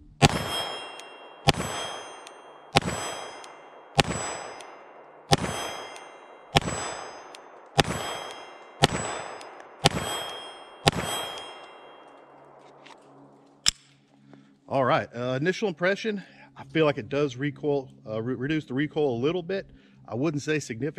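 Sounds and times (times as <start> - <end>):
steel target ringing: 0.0 - 12.8
pistol shots: 0.0 - 12.9.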